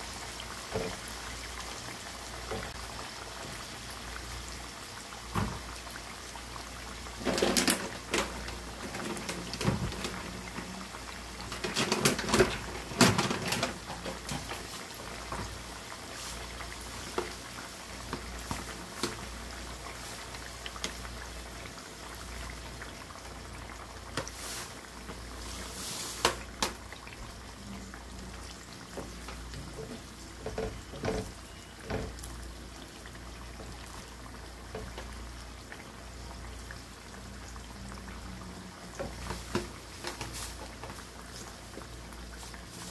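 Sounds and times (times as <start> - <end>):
food sizzling in hot oil: 0.0 - 42.9.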